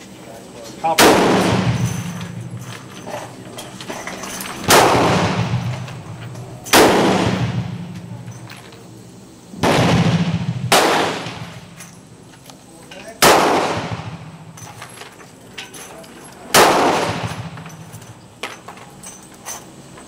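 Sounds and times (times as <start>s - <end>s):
revolver shots echoing: 4.7s - 6.0s.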